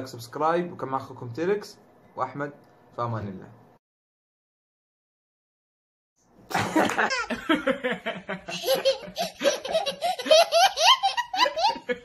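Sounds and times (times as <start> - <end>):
toddler laughing: 6.9 - 7.6, 8.5 - 12.0.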